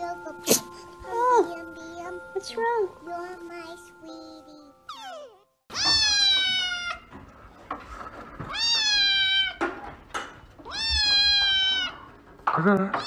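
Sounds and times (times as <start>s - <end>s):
kitten meowing: 4.9s - 7.1s, 8.5s - 9.6s, 10.6s - 12.0s.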